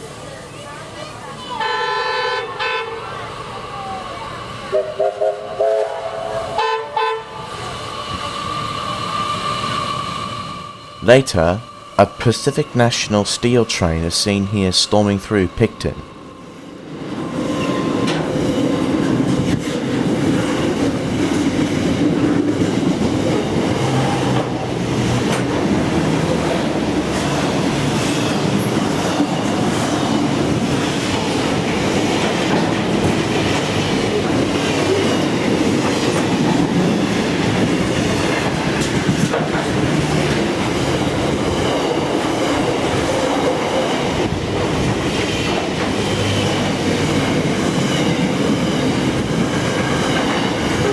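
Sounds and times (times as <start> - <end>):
freight train rumbling past: 0.0 - 50.9.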